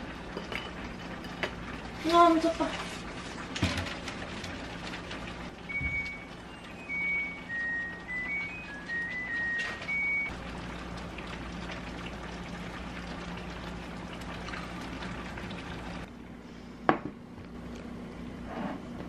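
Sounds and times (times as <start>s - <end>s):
washing machine beeping tune: 5.6s - 10.4s.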